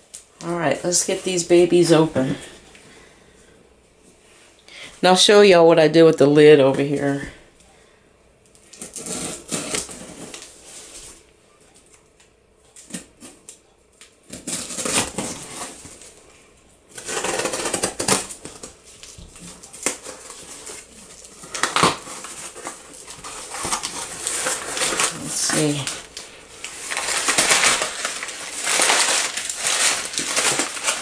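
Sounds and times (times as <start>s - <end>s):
knife slitting packing tape: 8.8s - 10.4s, 14.3s - 15.8s, 16.9s - 18.7s, 19.5s - 25.6s, 26.9s - 31.0s
rasping tape: 17.0s - 18.3s.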